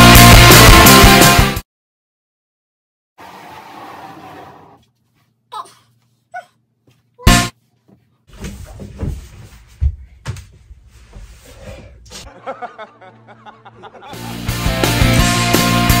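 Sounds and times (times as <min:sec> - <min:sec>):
music: 0:00.0 - 0:01.6, 0:12.9 - 0:16.0
rustling and clattering: 0:07.8 - 0:11.5.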